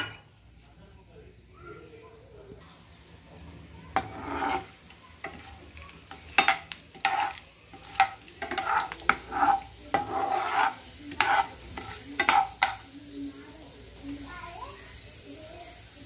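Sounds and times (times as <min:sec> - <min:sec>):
oil sizzling: 0:01.9 - 0:16.0
metal spoon scraping a pan: 0:03.9 - 0:12.9.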